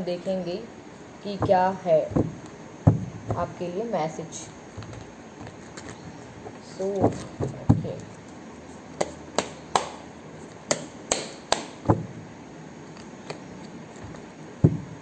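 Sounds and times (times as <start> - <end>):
cards shuffled with slaps: 9.0 - 11.7, 12.9 - 14.3.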